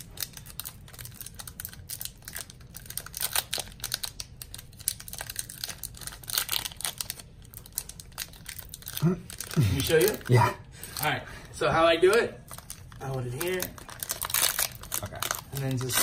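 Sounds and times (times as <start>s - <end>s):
foil wrapper crinkling and tearing: 0.0s - 11.2s, 12.0s - 16.0s.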